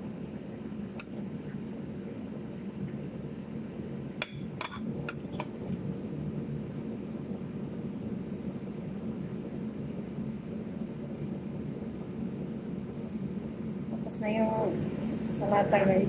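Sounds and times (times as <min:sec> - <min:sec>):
low hum: 0:00.0 - 0:16.0
spoon clinking against bowl: 0:04.2 - 0:05.5.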